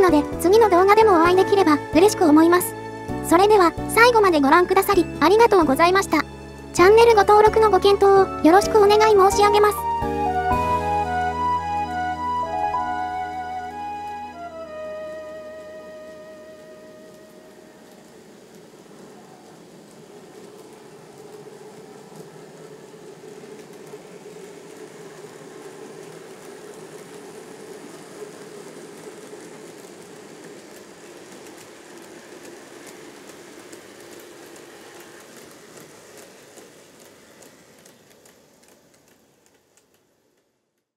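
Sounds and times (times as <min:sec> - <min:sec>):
wheels ticking on track: 0:14.9 - 0:40.9
model train motor hum: 0:17.4 - 0:40.5.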